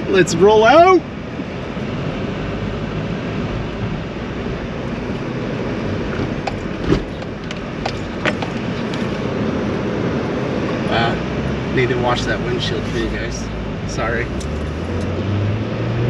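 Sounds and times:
car engine and tyre rumble: 0.0 - 16.0.

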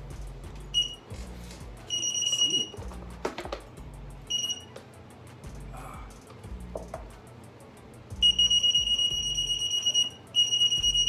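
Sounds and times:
background music with steady beat: 0.0 - 11.0
electric unicycle beeping: 0.6 - 1.2, 1.8 - 4.8, 8.1 - 11.0
knock: 6.7 - 7.1.

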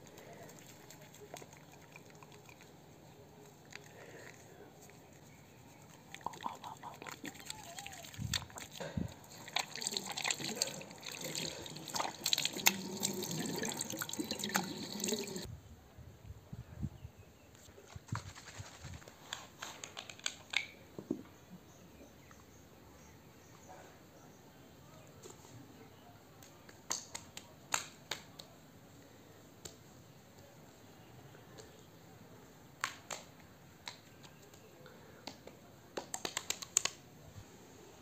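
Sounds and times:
water splashing and trickling: 6.0 - 15.5.

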